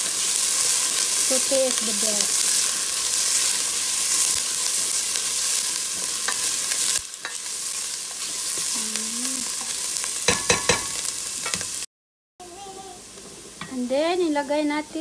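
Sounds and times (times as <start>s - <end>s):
garlic and onion sizzling in oil: 0.0s - 15.0s
spatula knocking against pot: 10.3s - 10.9s.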